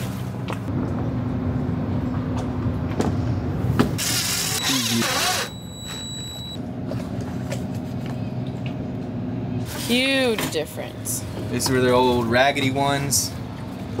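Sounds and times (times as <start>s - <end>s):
steady low hum: 0.0s - 14.0s
thin high whine: 4.0s - 6.6s
cordless drill whirring: 4.1s - 5.6s.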